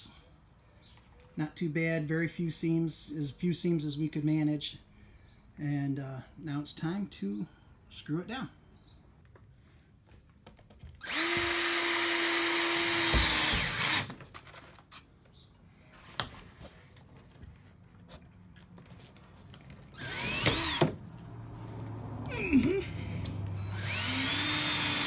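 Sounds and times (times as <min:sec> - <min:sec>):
cordless drill driving screws: 0:11.0 - 0:14.2, 0:19.9 - 0:21.0, 0:23.6 - 0:25.0.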